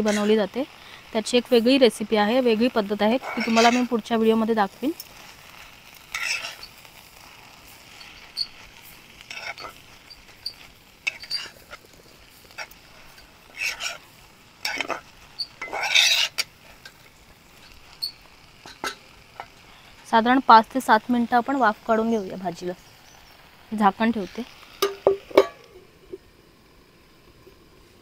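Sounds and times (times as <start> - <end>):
spoon scraping cooking pan: 0.0 - 0.5, 2.5 - 19.9, 24.4 - 25.9
faint sizzle: 0.0 - 28.0.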